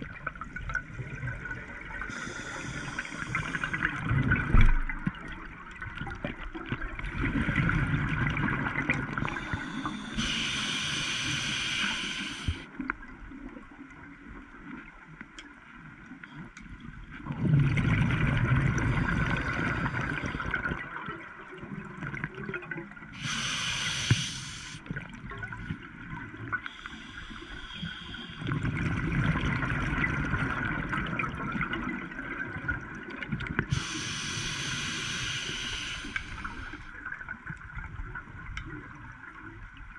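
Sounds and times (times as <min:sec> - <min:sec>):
regulator hissing: 0:09.8 - 0:12.6, 0:33.7 - 0:36.8.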